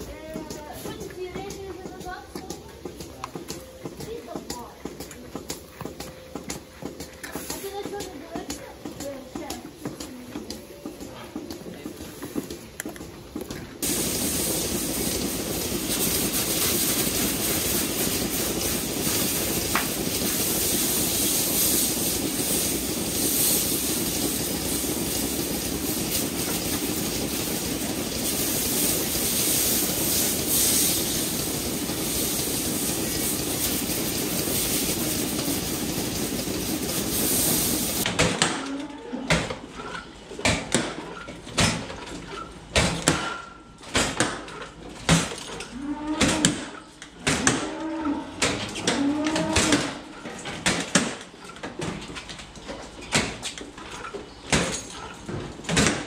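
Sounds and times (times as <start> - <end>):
hose water spraying: 0.0 - 12.7, 13.8 - 38.1
cows mooing: 45.6 - 46.6, 47.6 - 50.0.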